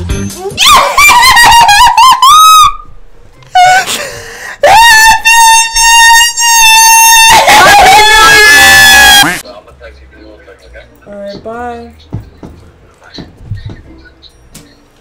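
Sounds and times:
women screaming: 4.6 - 9.4.

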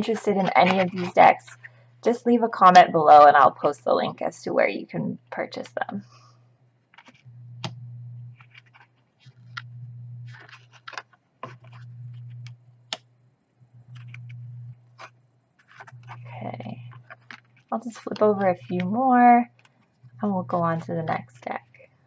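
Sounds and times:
cards scraping and clicking: 0.0 - 1.6, 6.9 - 7.3, 8.3 - 9.7, 10.3 - 12.5, 13.9 - 20.0
low hum: 7.3 - 8.6, 9.3 - 10.7, 11.4 - 21.9.

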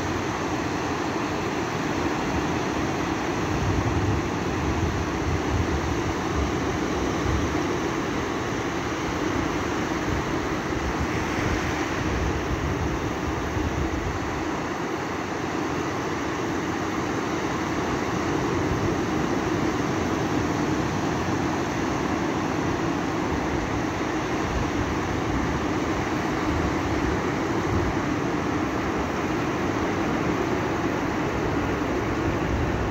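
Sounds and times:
small waves breaking on sand: 0.0 - 32.9.

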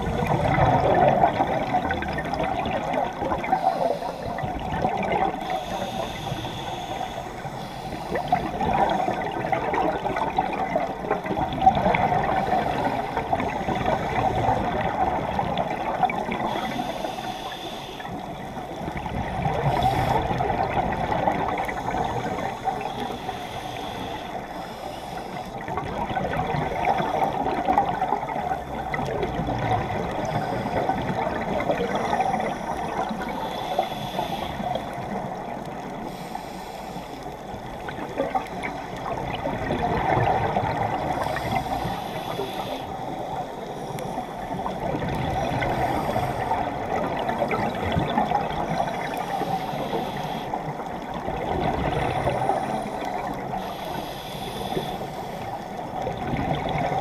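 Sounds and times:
scuba regulator breathing underwater: 0.0 - 11.0, 11.8 - 57.0
exhaled bubbles underwater: 0.0 - 36.7, 37.5 - 57.0.

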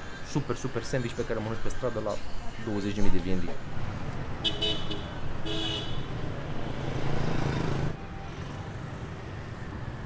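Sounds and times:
street traffic: 0.0 - 10.0
vehicle horn toots: 4.4 - 6.1.

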